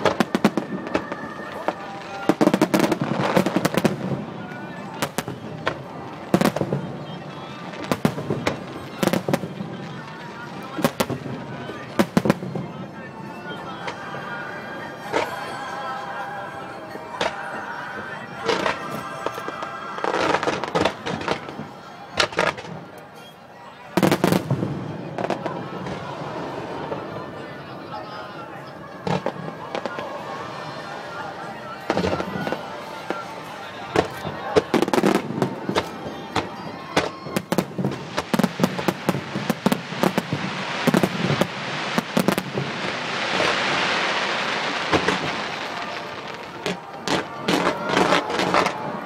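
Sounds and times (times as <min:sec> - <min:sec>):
fireworks bangs and crackles: 0:00.0 - 0:15.5, 0:17.2 - 0:23.2, 0:23.8 - 0:49.0
firework shells banging and crackling: 0:18.4 - 0:23.3, 0:33.9 - 0:49.0.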